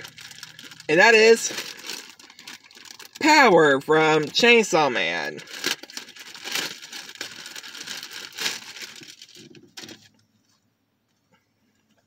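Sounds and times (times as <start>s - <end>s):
plastic bag crinkling: 0.0s - 10.2s.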